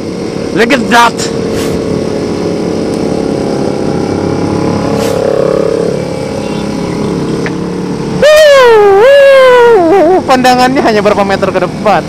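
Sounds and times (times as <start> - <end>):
motorcycle engine cruising: 0.0 - 12.0
wind and road noise: 0.0 - 12.0
loud high-pitched sliding sound: 1.2 - 1.9, 4.0 - 7.2.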